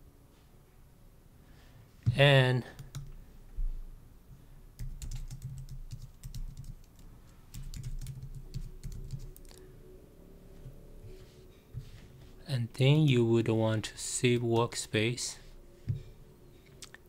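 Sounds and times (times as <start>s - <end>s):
computer keyboard typing: 2.7s - 3.1s, 4.8s - 9.6s.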